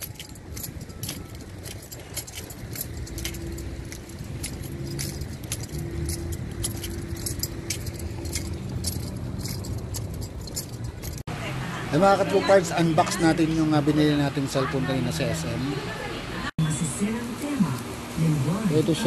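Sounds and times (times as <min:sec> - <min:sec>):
metallic jingling and clicking: 0:00.0 - 0:11.3
car engines rumbling: 0:00.0 - 0:16.5.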